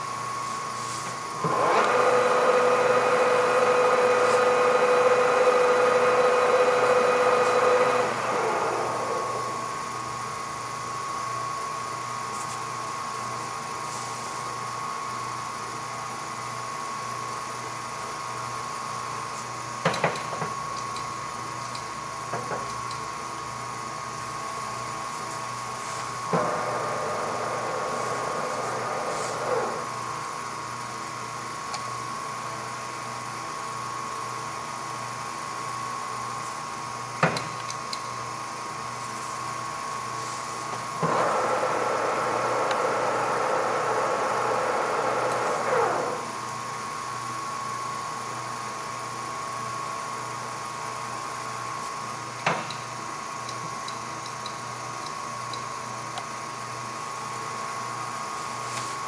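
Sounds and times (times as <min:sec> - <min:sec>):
lathe motor whining: 0:01.4 - 0:09.8, 0:26.3 - 0:30.0, 0:41.0 - 0:46.4.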